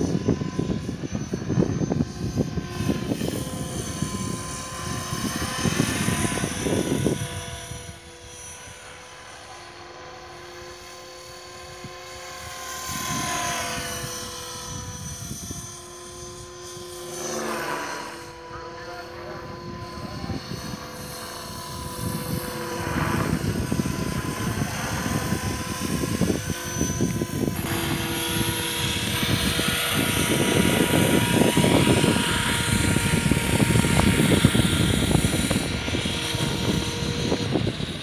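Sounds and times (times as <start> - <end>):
rc helicopter motor and rotor whine: 0.0 - 38.0.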